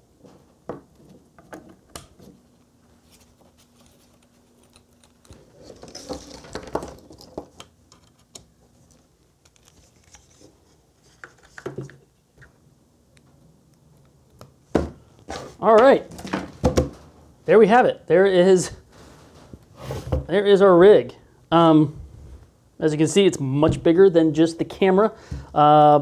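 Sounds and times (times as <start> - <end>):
cable rustling: 2.2 - 11.7.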